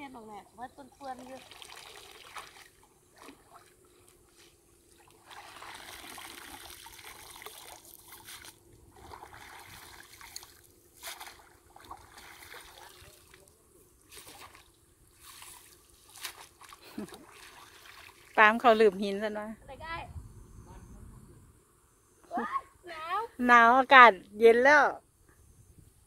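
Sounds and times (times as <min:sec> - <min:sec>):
stream trickling over rocks: 0:01.1 - 0:02.8, 0:05.2 - 0:13.4
sharp water splashes: 0:01.2 - 0:03.7, 0:05.0 - 0:13.4, 0:14.1 - 0:18.7.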